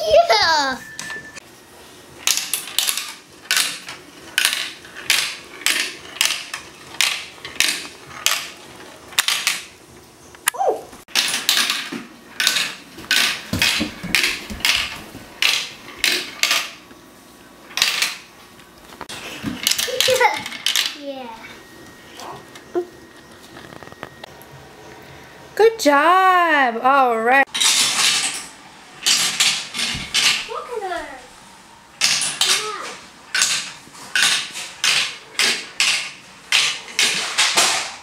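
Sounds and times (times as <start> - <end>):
plastic toy pieces clacking: 2.2 - 9.7.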